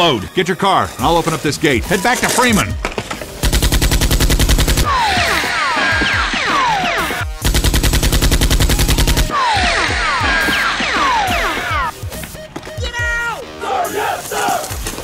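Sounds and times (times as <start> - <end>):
machine-gun fire bursts: 3.4 - 5.5, 7.1 - 9.8
falling whistling whines: 8.8 - 12.5.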